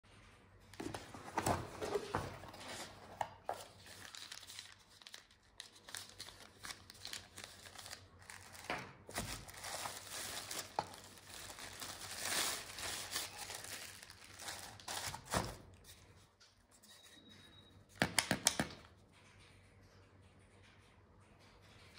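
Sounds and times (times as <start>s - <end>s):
cardboard and wrapping crinkling: 0.8s - 16.1s.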